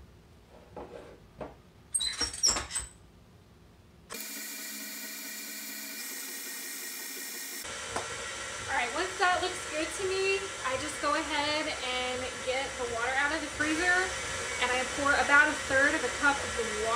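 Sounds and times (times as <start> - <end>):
stand mixer motor whining: 4.1 - 16.9.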